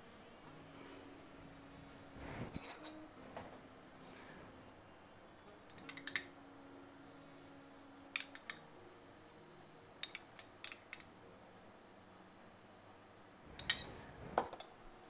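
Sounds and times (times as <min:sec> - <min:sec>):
faint steady hum: 0:00.0 - 0:15.0
metal spoon clinking on bowls: 0:05.7 - 0:06.3, 0:08.2 - 0:08.6, 0:10.0 - 0:11.1, 0:13.6 - 0:14.7.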